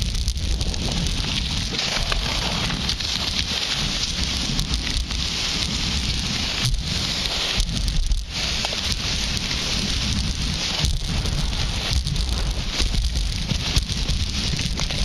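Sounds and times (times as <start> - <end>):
skis hissing on snow: 0.0 - 15.0
wind buffeting microphone: 0.0 - 15.0.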